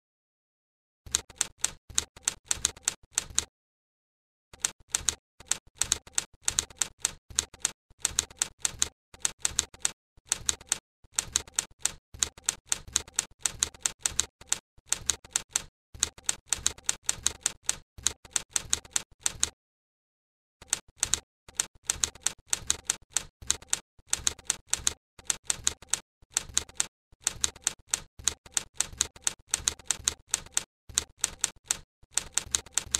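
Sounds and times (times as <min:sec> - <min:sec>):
manual typewriter clacking: 0:20.7 - 0:32.9.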